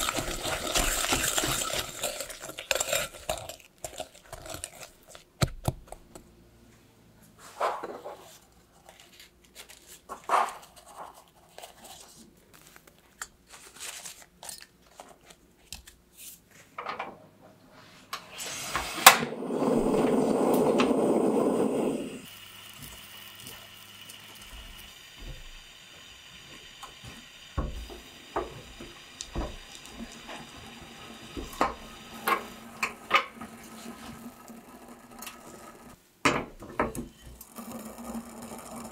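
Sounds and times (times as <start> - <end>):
faint steady stove hum: 17.6 - 38.9
rush of sound: 19.2 - 22.3.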